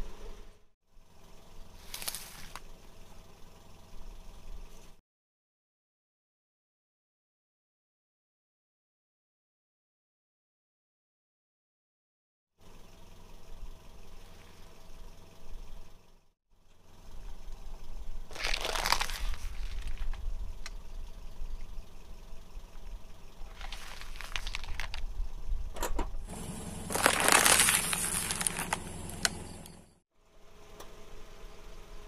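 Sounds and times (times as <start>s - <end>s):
low car engine rumble: 0.0s - 5.0s, 12.6s - 32.0s
car tyre crushing small objects: 1.8s - 2.7s, 18.3s - 20.8s, 23.3s - 25.4s, 26.3s - 29.9s.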